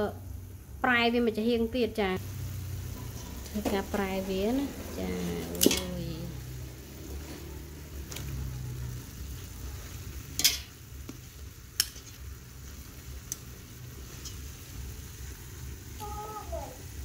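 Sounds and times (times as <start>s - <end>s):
pot simmering and sizzling: 0.0s - 17.0s
tongs clacking against pot: 5.5s - 6.0s, 10.4s - 10.8s, 11.7s - 12.3s, 14.1s - 14.5s.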